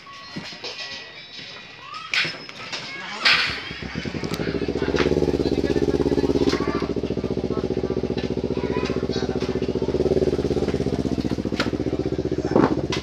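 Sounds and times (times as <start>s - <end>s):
engine running with fast pulse: 3.4s - 13.0s.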